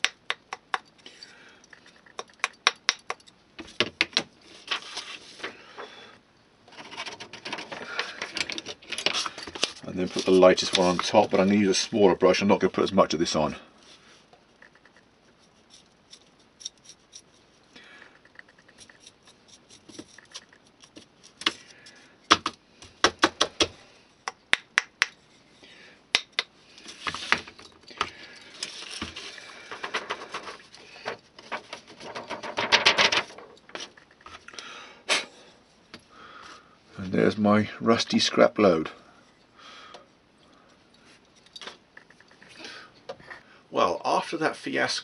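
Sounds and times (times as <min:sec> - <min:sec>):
sharp taps and clicks: 0:00.0 - 0:01.0, 0:02.0 - 0:04.2, 0:22.3 - 0:23.7, 0:24.3 - 0:25.2, 0:26.1 - 0:26.5
paper rustling and scraping: 0:04.4 - 0:05.6, 0:06.7 - 0:11.5, 0:28.5 - 0:34.0
paintbrush scratching and dabbing: 0:14.5 - 0:17.7.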